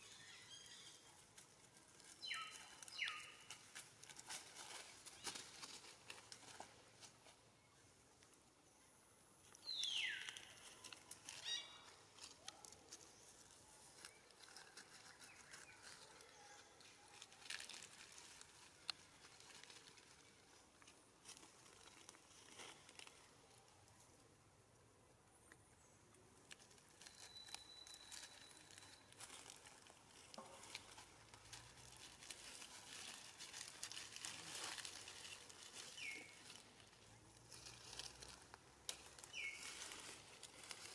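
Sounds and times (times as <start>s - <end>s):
rustling of grass and leaves: 0.0s - 24.7s, 25.4s - 40.9s.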